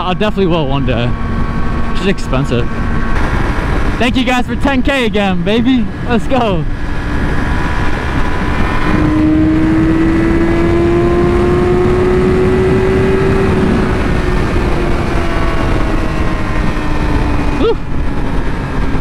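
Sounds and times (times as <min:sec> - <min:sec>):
wind rush on microphone: 0:00.0 - 0:19.0
motorcycle engine under throttle: 0:05.5 - 0:19.0.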